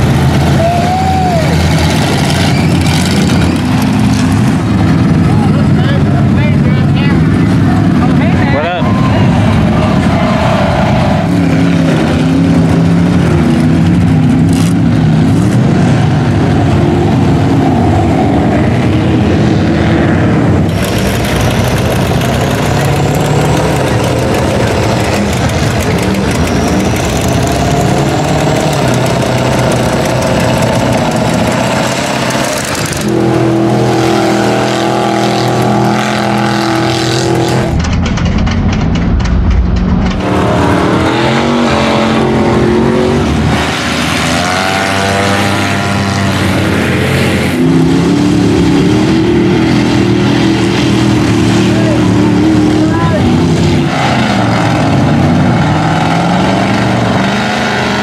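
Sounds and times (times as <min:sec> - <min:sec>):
truck engines revving: 0:00.0 - 0:58.0.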